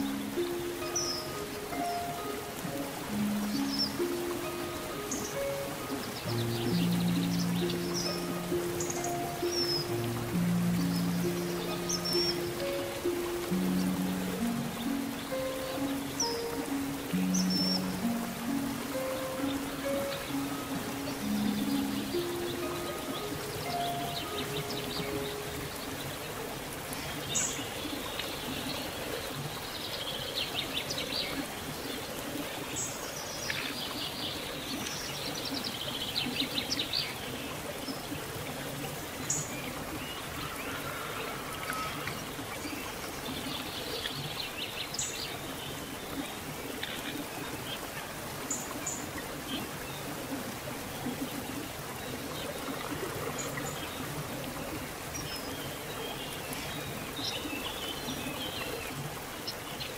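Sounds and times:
small birds chirping: 0.0 - 47.8
stream burbling over rocks: 0.0 - 59.9.

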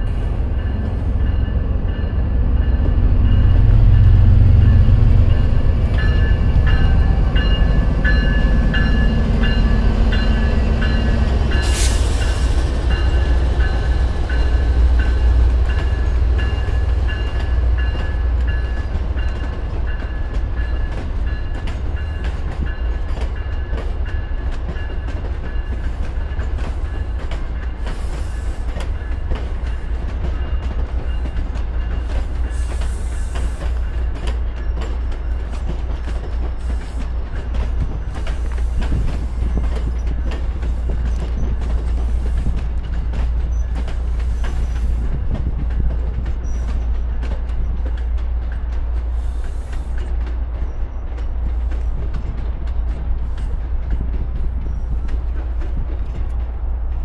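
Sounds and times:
train rumbling: 0.0 - 57.0
wheels clicking over rail joints: 12.8 - 57.0.

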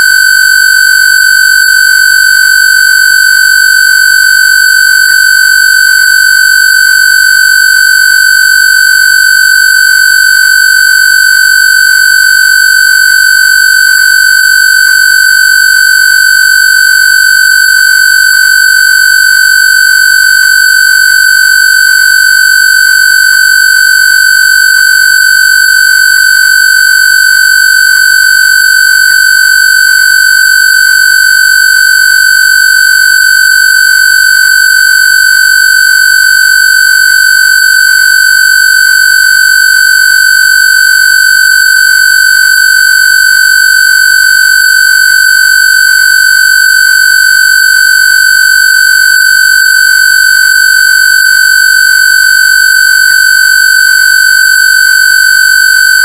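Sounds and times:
high buzzy square-wave tone: 0.0 - 47.6, 48.3 - 48.6, 49.3 - 52.6.

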